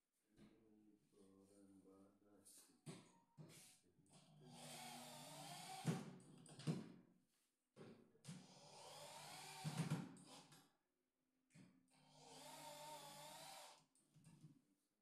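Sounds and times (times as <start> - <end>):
electric drill boring into wood: 4.5 - 6.1, 8.5 - 10.0, 12.2 - 13.8.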